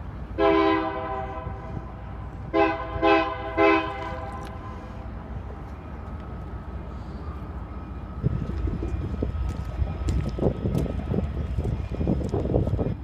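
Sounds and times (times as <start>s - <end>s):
steady low rumble: 0.0s - 13.0s
locomotive air horn blasts: 0.4s - 4.9s.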